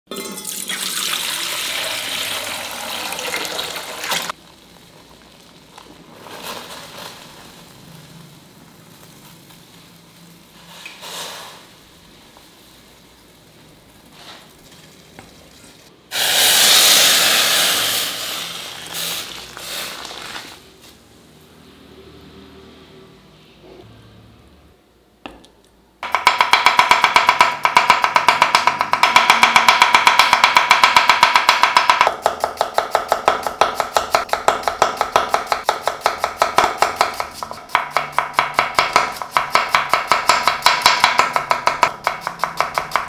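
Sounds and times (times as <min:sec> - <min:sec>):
water pouring into metal pot: 0:00.1 - 0:04.4.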